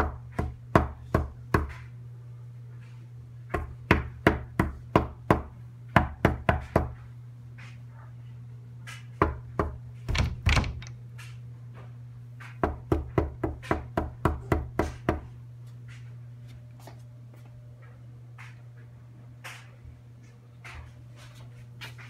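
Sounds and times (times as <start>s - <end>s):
knuckles knocking on door: 9.2s - 10.9s.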